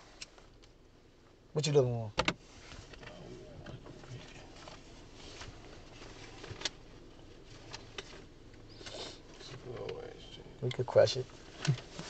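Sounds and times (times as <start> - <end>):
soft rustles: 2.4 - 10.4, 11.0 - 12.0.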